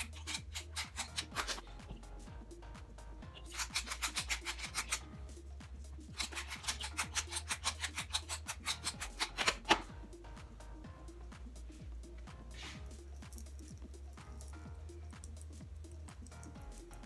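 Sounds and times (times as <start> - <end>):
pepper mill grinding: 0.0 - 1.6, 3.4 - 5.0, 6.1 - 9.8.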